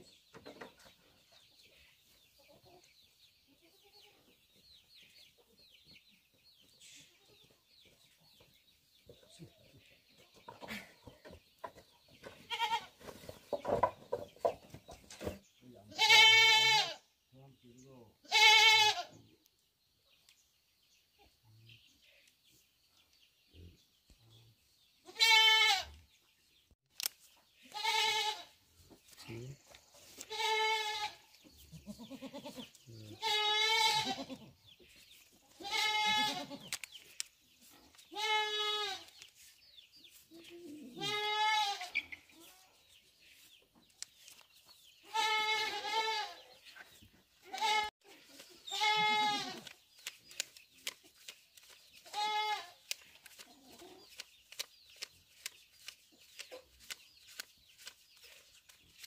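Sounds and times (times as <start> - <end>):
goat bleating: 12.4 - 13.0, 15.9 - 17.0, 18.2 - 19.2, 25.0 - 26.0, 27.7 - 28.6, 30.2 - 34.6, 35.6 - 36.7, 38.1 - 39.1, 40.8 - 42.0, 45.0 - 46.4, 47.4 - 47.9, 48.5 - 49.7, 52.0 - 52.8.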